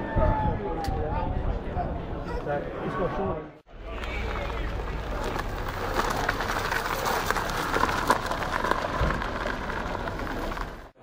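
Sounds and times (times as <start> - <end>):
tyres crackling over loose stones: 3.8 - 11.0.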